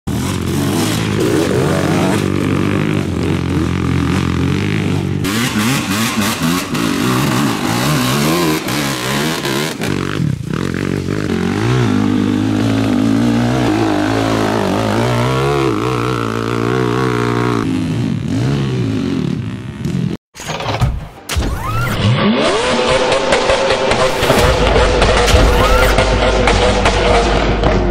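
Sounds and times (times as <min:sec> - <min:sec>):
atv engines revving: 0:00.1 - 0:20.2, 0:22.0 - 0:27.9.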